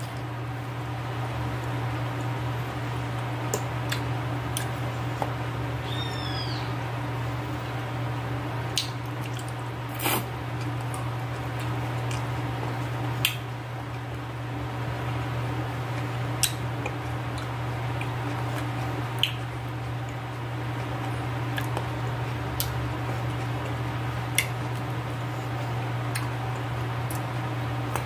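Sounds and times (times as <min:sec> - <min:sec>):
steady low hum: 0:00.0 - 0:28.0
wet mouth smacks and clicks: 0:08.7 - 0:10.2, 0:19.2 - 0:19.4.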